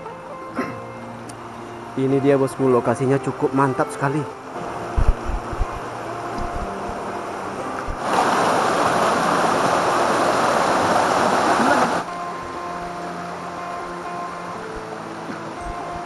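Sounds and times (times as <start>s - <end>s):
river rapids rushing: 0.0s - 16.0s
quiet steady tones: 12.0s - 16.0s.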